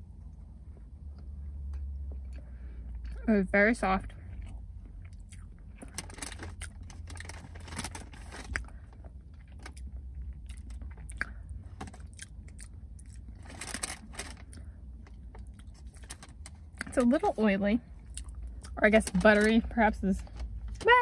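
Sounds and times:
steady low hum: 0:00.0 - 0:21.0
person chewing food: 0:04.2 - 0:07.6, 0:08.2 - 0:16.9, 0:18.0 - 0:18.8.

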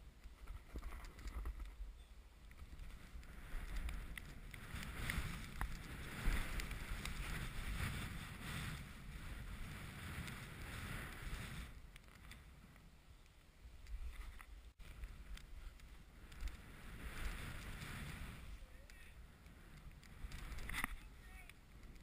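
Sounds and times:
wind on microphone: 0:02.6 - 0:11.8
snowboard scraping over snow: 0:02.9 - 0:11.8, 0:16.6 - 0:18.8.

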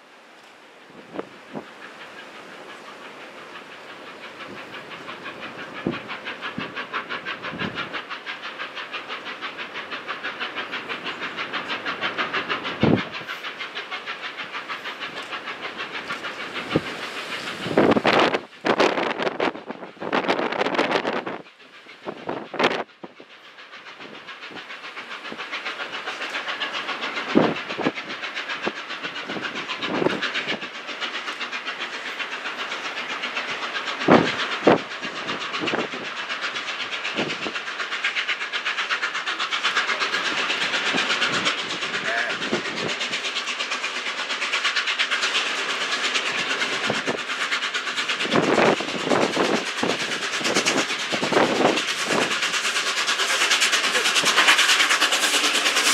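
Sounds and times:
steam locomotive exhaust beats: 0:00.0 - 0:55.9
train running noise: 0:00.0 - 0:55.9
wind buffeting microphone: 0:00.9 - 0:01.8, 0:04.4 - 0:08.0, 0:11.9 - 0:13.3, 0:16.0 - 0:23.3, 0:26.8 - 0:31.2, 0:32.6 - 0:36.5, 0:37.1 - 0:37.6, 0:46.2 - 0:55.9.

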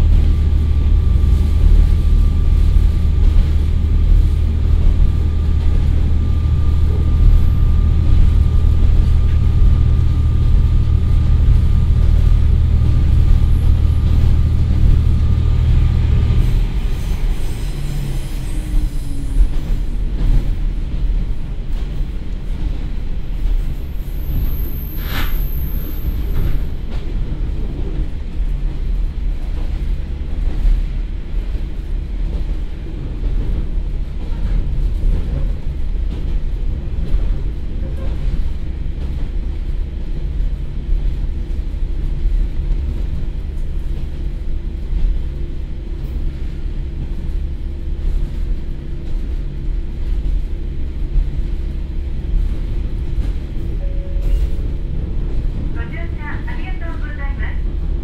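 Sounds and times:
diesel engine droning: 0:00.0 - 0:19.2
wheels rumbling on rail: 0:00.0 - 0:58.0
brief high-pitched squeal: 0:53.8 - 0:54.6.

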